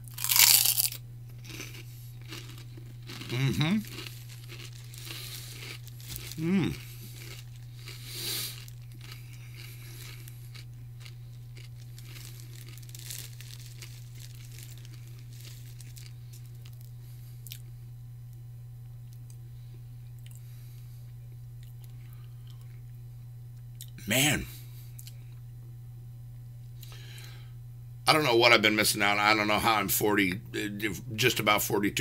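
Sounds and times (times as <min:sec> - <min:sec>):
crunching and chewing pork rinds: 0:00.0 - 0:17.7, 0:20.2 - 0:20.8
steady low hum: 0:00.0 - 0:32.0.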